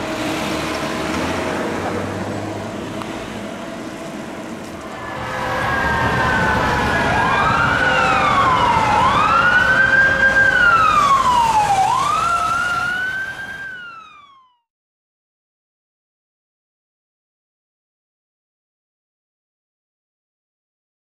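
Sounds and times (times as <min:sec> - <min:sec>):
vehicle noise: 0:00.0 - 0:14.5
emergency vehicle siren wailing: 0:00.0 - 0:14.7.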